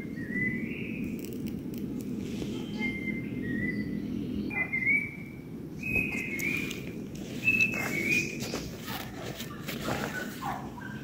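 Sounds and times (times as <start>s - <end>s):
bird whistling: 0.2s - 1.1s, 2.6s - 6.8s, 7.4s - 8.5s.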